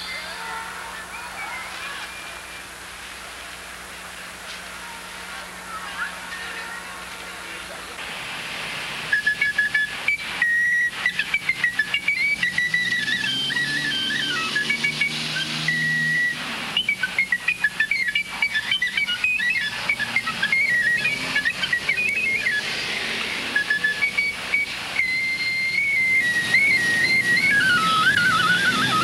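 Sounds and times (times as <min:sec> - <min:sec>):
high whistling tone: 0:00.0 - 0:02.7, 0:09.1 - 0:29.0
faint hiss: 0:00.0 - 0:29.0.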